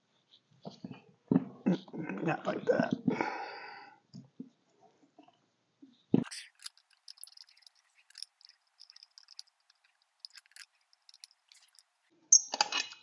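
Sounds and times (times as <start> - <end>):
small metallic clicks and scrapes: 6.2 - 13.0.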